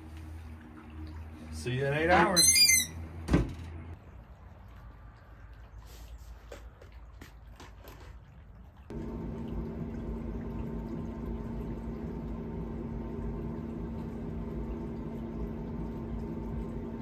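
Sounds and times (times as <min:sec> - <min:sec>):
low uneven rumble: 0:08.9 - 0:17.0
smoker fan humming: 0:08.9 - 0:17.0.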